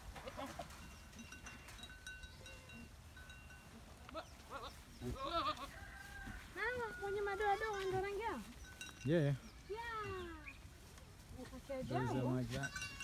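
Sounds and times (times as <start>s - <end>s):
goats bleating: 4.1s - 5.8s.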